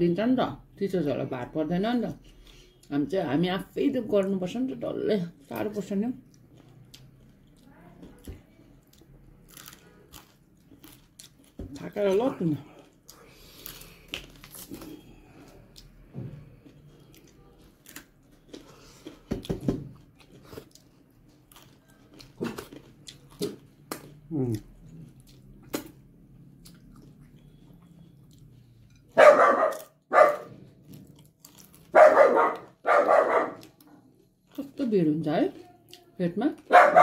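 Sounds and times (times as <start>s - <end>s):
quiet chewing: 6.2s - 11.8s, 12.6s - 25.8s, 26.4s - 30.1s, 30.8s - 32.8s, 33.4s - 34.7s
dog barking: 29.1s - 30.6s, 31.9s - 33.7s, 36.7s - 37.0s.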